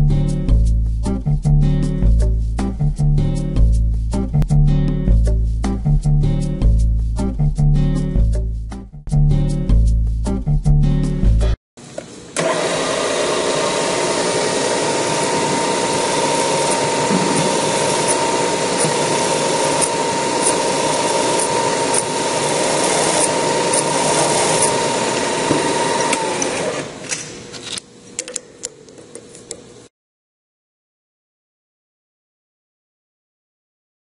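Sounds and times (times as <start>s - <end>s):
drill cutting metal: 12.4s - 27.0s
drill spindle whining: 12.4s - 27.1s.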